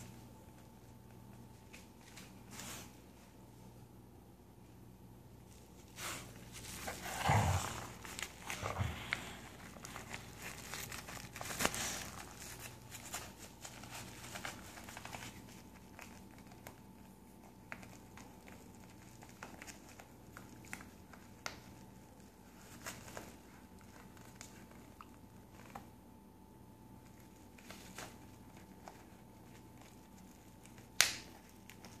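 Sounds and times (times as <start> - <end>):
dog tearing paper envelope: 5.9 - 25.9, 27.0 - 32.0.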